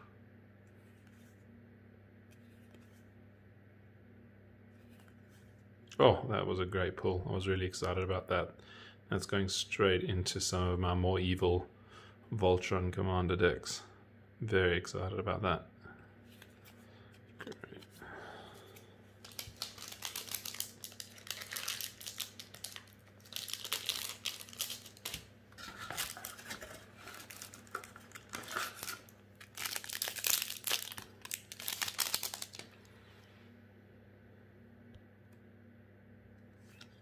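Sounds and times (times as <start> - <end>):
foil wrapper tearing and crinkling: 19.2 - 32.7.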